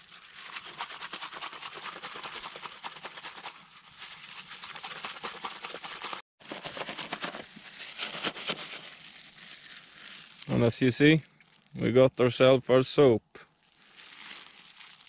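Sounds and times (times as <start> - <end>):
plastic bag crinkling: 0.0 - 0.8, 6.4 - 10.7, 11.4 - 11.8, 13.5 - 15.0.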